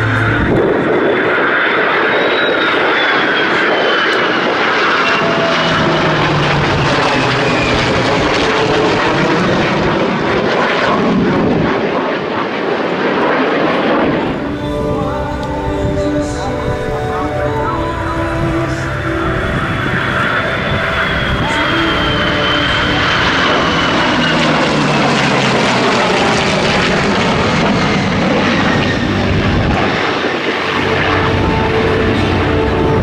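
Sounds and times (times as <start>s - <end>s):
music: 0.0s - 1.0s, 14.4s - 24.2s, 30.6s - 33.0s
aircraft passing overhead: 0.0s - 33.0s.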